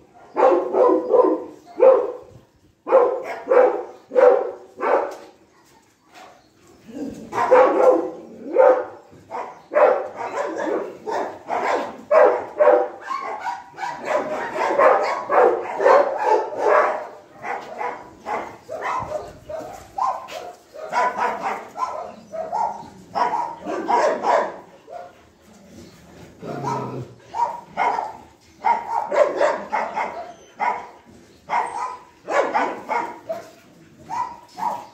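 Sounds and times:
dogs barking: 0.0 - 5.4, 7.2 - 25.4, 26.4 - 34.9.

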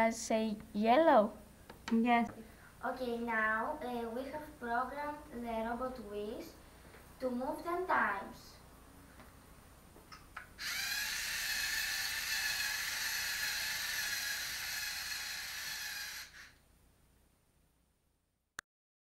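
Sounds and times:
whine of motor and gears: 10.6 - 16.6.

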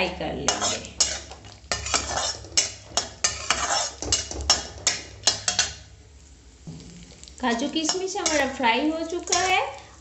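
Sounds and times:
metal spatula scraping a wok: 0.4 - 5.9, 7.5 - 10.0.

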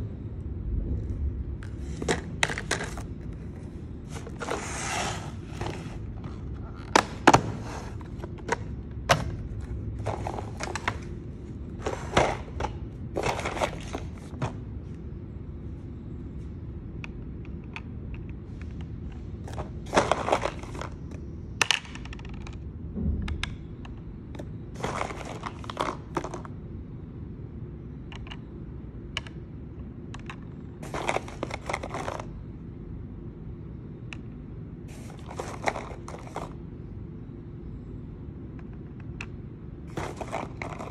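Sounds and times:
steady low hum: 0.0 - 40.9
small bottles set down in plastic: 39.9 - 40.9.

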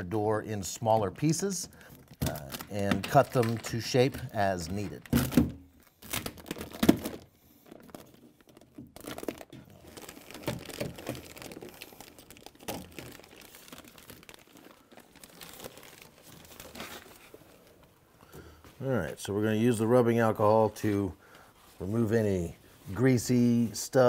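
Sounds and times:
plastic sheet crinkling and tearing: 0.7 - 17.9.

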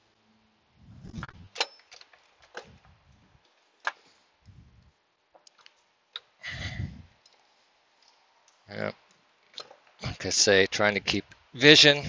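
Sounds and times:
dull low thumps: 0.8 - 1.6.

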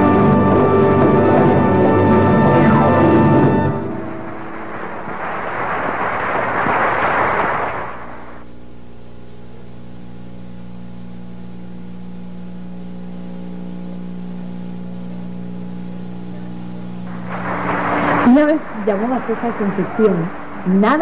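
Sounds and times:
audience applause: 0.0 - 8.4, 17.1 - 21.0
low electrical hum: 0.0 - 21.0.

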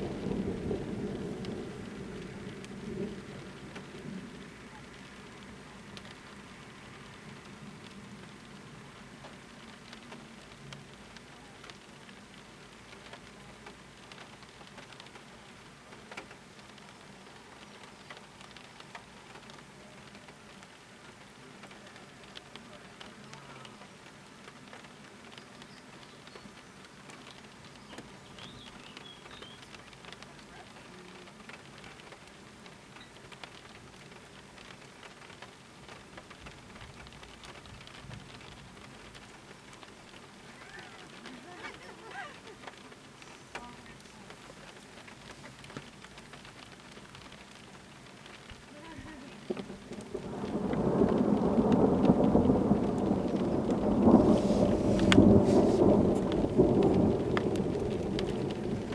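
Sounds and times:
rain falling: 0.0 - 58.9
raindrop ticks: 0.0 - 58.9.

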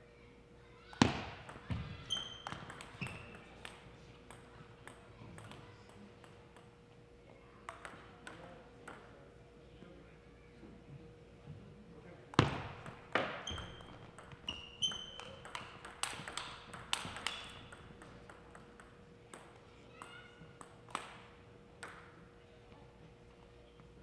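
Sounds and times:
faint steady hum: 0.0 - 24.0
paddle hitting ping pong ball: 1.0 - 5.6, 7.7 - 9.1, 12.3 - 22.1
ball bouncing on floor and table: 1.0 - 6.8, 7.7 - 9.1, 12.3 - 22.2
sneaker squeaks on floor: 1.7 - 3.5, 13.2 - 15.6, 17.0 - 17.8.

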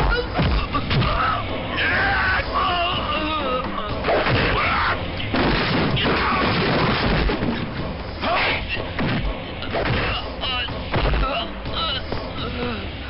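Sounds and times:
people shouting: 0.1 - 5.2, 5.9 - 6.6
heavy impacts and crashes: 4.0 - 11.3.

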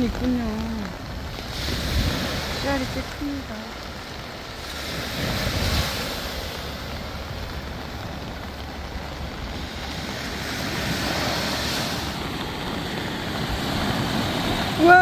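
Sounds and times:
surf washing up beach: 0.0 - 15.0
wind buffeting microphone: 0.0 - 15.0.

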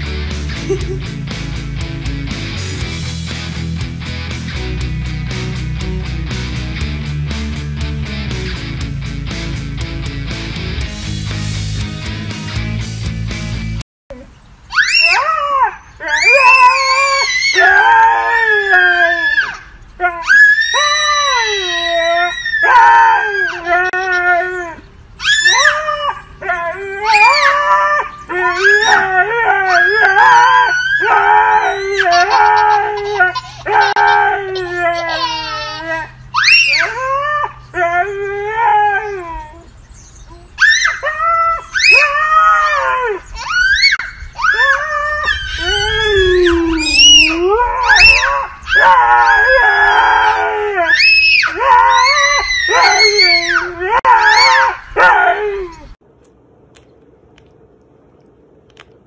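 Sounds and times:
toddler screaming: 14.7 - 24.4, 25.2 - 26.2, 26.9 - 37.6, 40.3 - 56.0
child howling: 14.7 - 56.0
dog howling: 14.8 - 56.0.

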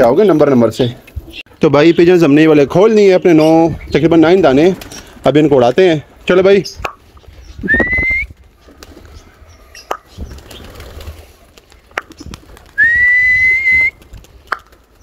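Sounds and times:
man whistling shrilly: 7.6 - 8.3, 12.8 - 14.0
pigeon wing flaps: 7.8 - 9.3, 10.0 - 15.0.

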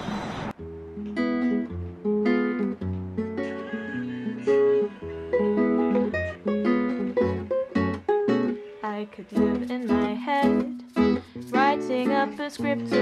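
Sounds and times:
acoustic guitar chords: 0.6 - 13.0.

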